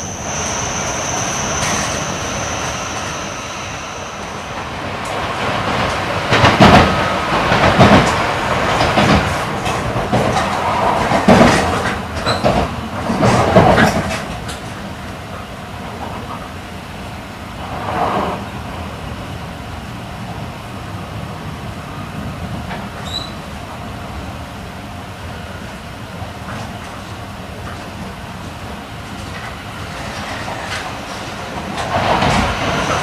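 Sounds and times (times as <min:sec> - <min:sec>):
train running rumble: 0:00.0 - 0:33.0
train jolts and clatters: 0:03.8 - 0:16.5, 0:26.4 - 0:33.0.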